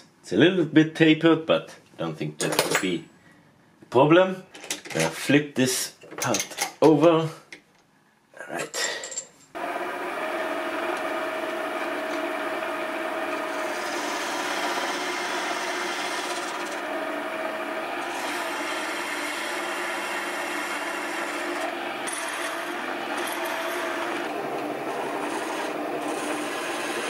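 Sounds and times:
lathe motor whine: 9.6 - 27.0
turning tool scraping metal rod: 10.7 - 27.0.

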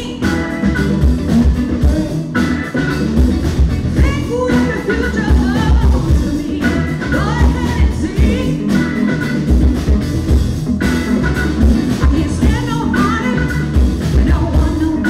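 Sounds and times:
woman singing lead: 0.0 - 3.0, 3.8 - 9.5, 11.9 - 15.0
live rock band playing: 0.0 - 15.0.

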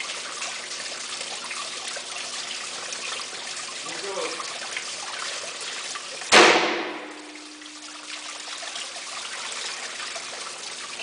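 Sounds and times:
rifle shot: 6.3 - 7.2
faint ringing: 7.1 - 8.5.

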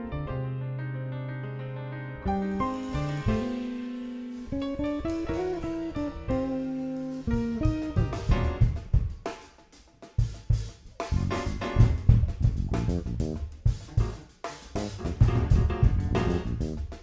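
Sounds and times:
grand piano notes: 0.0 - 9.1
bass notes: 2.2 - 9.3, 10.2 - 17.0
drum kit playing: 2.3 - 17.0.

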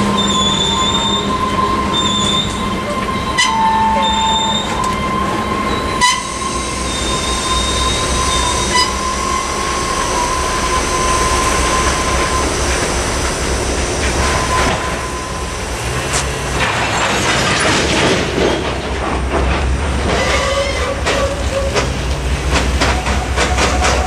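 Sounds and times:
train wheels squealing: 0.0 - 15.6, 20.1 - 21.9.

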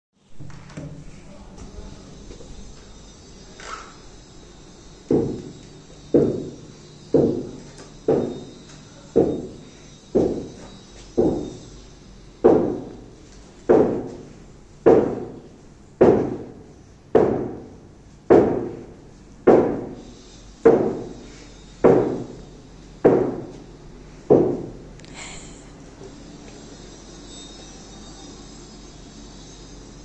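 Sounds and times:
dull thuds: 13.7 - 14.2, 14.9 - 15.4, 16.0 - 16.6, 17.2 - 17.7, 18.3 - 20.0.

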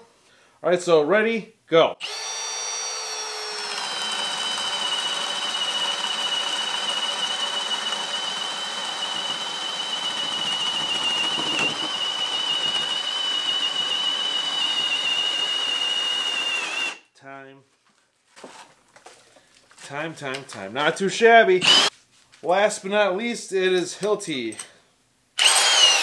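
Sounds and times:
cordless drill whining under load: 2.0 - 17.0, 21.6 - 21.9, 25.4 - 26.0.

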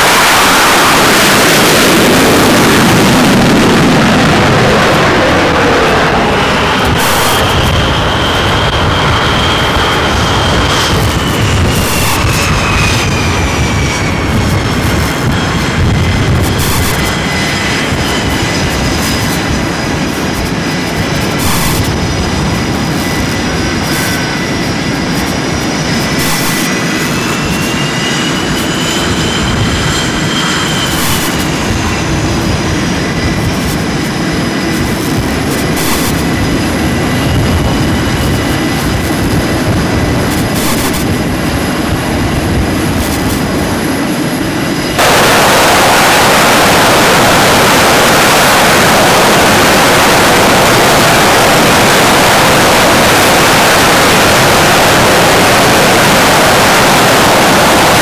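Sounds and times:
jet engine whine: 0.0 - 58.0
jet engines running loudly: 0.0 - 58.0
rushing jet roar: 0.0 - 58.0.

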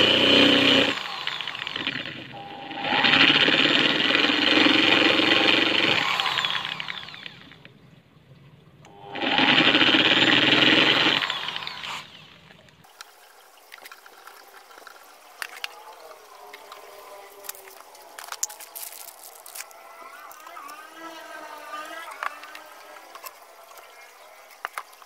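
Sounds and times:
electric drill boring through wood: 0.0 - 7.7, 8.9 - 12.6, 13.8 - 25.0
faint clicks and scrapes: 12.5 - 20.8.

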